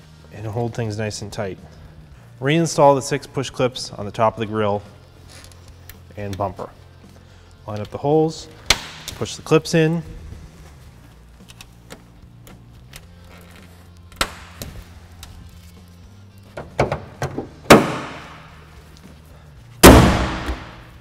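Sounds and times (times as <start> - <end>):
car hood metallic clunk: 16.6 - 18.3.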